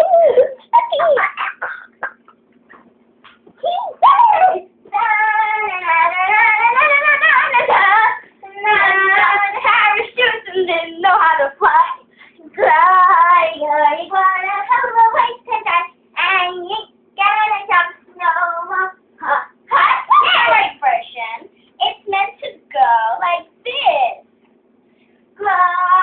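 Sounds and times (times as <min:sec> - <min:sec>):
girls singing unaccompanied: 0:04.0 - 0:23.8, 0:25.4 - 0:26.0.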